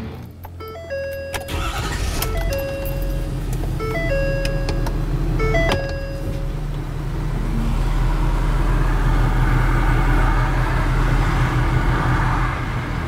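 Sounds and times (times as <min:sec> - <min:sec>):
diesel truck engine rumble: 0:00.0 - 0:13.0
two-note warning chime: 0:00.6 - 0:06.5.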